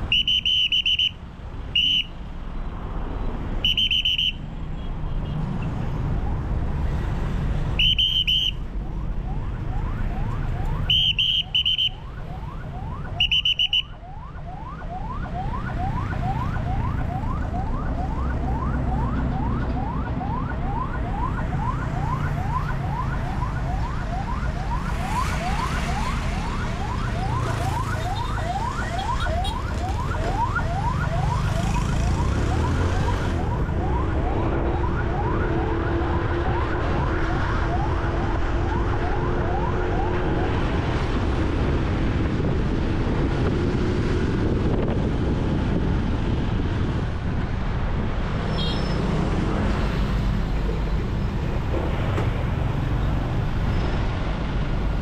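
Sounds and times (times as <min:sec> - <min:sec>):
traffic rumble: 0:00.0 - 0:55.0
emergency siren yelping: 0:07.8 - 0:41.8.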